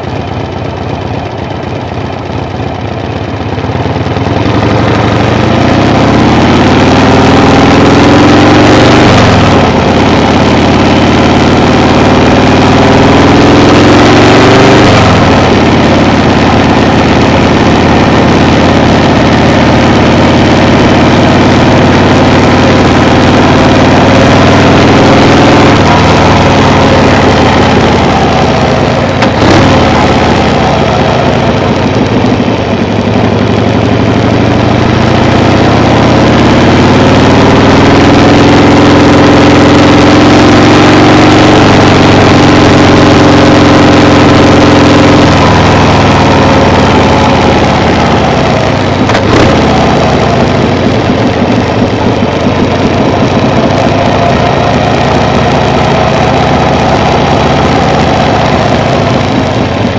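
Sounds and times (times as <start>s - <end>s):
vehicle engine accelerating: 0.0s - 59.9s.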